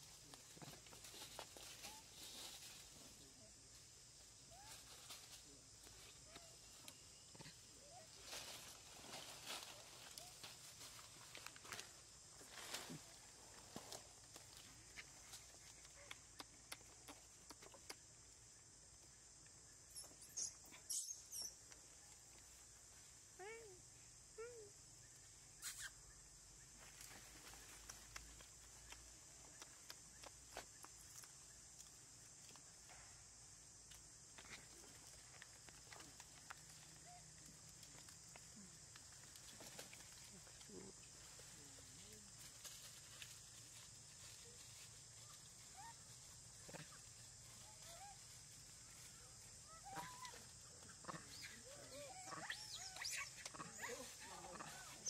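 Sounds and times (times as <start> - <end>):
rustle: 0.0 - 55.0
monkey coo: 49.7 - 55.0.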